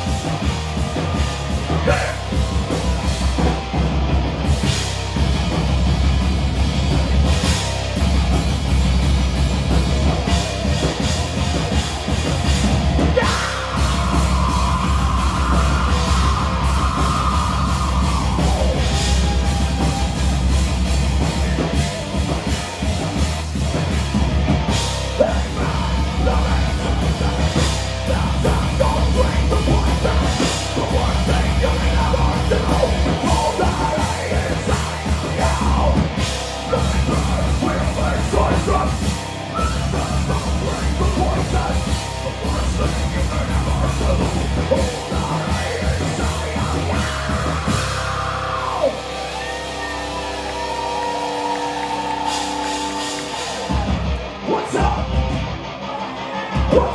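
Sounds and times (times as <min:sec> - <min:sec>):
bass guitar: 0:00.0 - 0:56.9
distorted electric guitars: 0:00.0 - 0:56.9
drum kit: 0:00.0 - 0:56.9.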